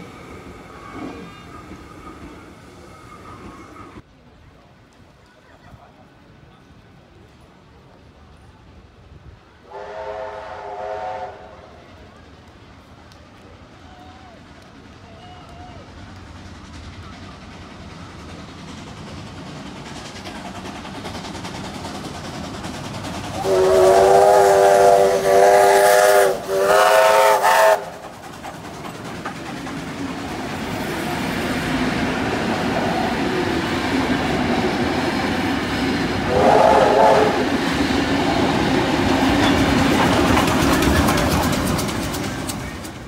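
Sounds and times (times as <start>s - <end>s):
train wheels rumbling on rails: 0.0s - 43.0s
steam locomotive whistle: 9.6s - 12.0s, 23.4s - 28.1s, 36.2s - 38.5s.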